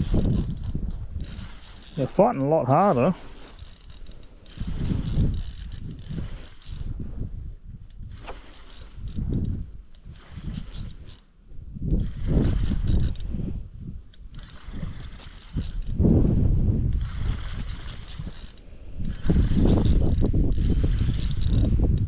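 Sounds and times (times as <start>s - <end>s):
fishing reel whirring click: 0.0s - 2.1s, 3.2s - 7.0s, 7.8s - 11.3s, 11.9s - 13.3s, 14.1s - 16.0s, 16.9s - 22.0s
wind rumble on microphone: 0.0s - 2.3s, 3.1s - 22.0s.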